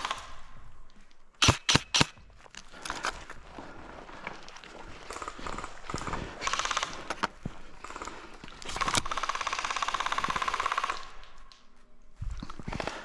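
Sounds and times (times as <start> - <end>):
airsoft gun firing bursts: 1.4 - 2.2, 5.1 - 11.4.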